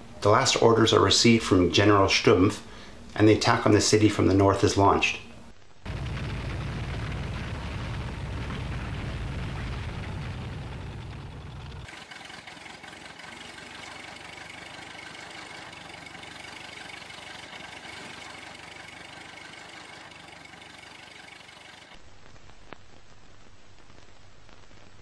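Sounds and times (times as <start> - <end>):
deep engine rumble: 5.8 - 21.9
vehicle engines running: 5.9 - 22.0.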